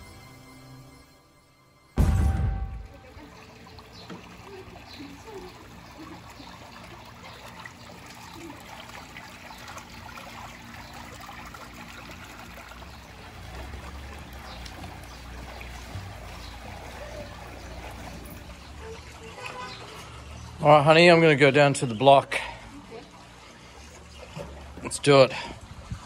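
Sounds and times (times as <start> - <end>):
low rumble: 2.0 - 3.4
trickling running water: 2.8 - 26.0.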